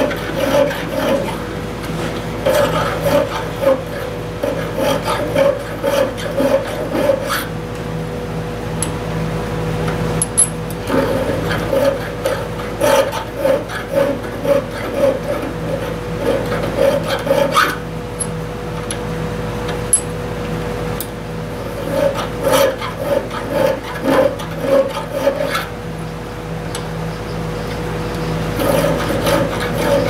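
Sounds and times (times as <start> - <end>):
hand file rasping on metal: 0.0 - 1.4, 2.4 - 7.5, 10.9 - 17.8, 21.6 - 25.7, 28.4 - 30.0
steady hum: 0.0 - 30.0.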